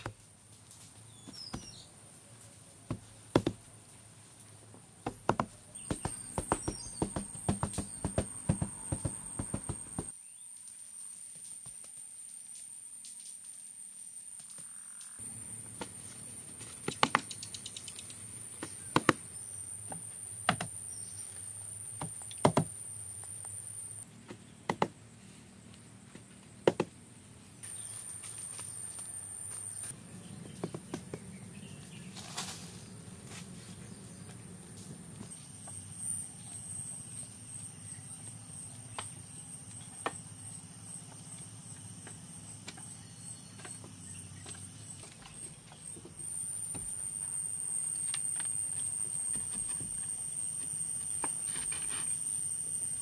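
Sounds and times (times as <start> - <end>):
sharp short knocks: 5.0 - 10.1
high insect drone: 5.8 - 24.1, 27.6 - 53.0.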